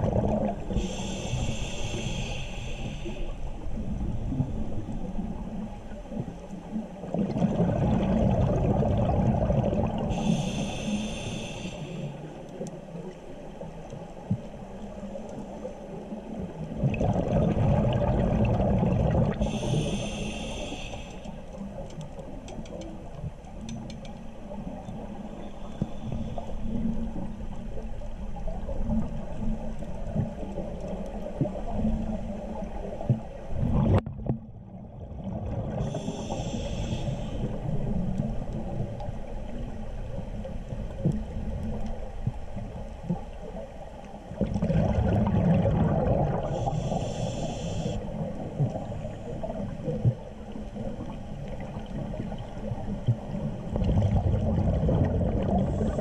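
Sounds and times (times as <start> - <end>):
gurgle of exhaled bubbles: 0.0 - 1.1, 7.0 - 10.5, 16.3 - 19.8, 28.4 - 36.6, 44.3 - 47.5, 48.1 - 56.0
regulator hissing inhales: 0.8 - 3.4, 10.1 - 12.3, 19.4 - 21.4, 25.4 - 26.8, 35.8 - 37.6, 46.5 - 48.1.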